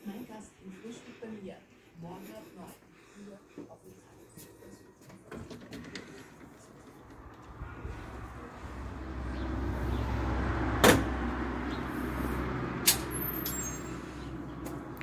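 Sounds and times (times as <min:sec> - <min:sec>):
car passing: 0:05.8 - 0:15.0.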